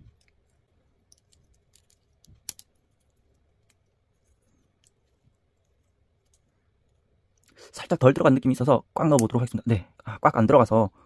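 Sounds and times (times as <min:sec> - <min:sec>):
plastic parts clicking and tapping: 0:00.0 - 0:04.0.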